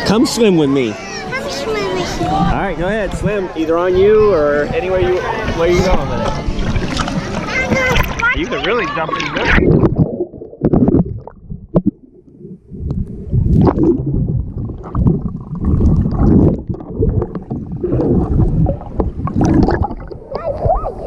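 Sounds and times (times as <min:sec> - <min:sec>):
water gurgling and bubbles: 0:02.2 - 0:21.0
dull knocks underwater: 0:05.0 - 0:08.5, 0:09.2 - 0:20.8.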